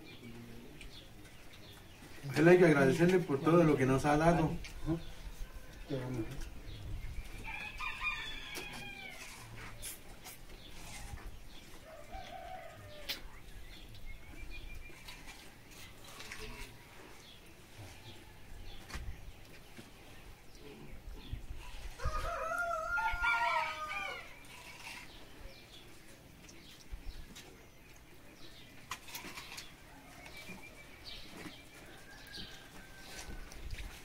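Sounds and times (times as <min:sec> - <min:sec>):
rooster crowing: 0:07.4 - 0:09.3, 0:22.0 - 0:24.3.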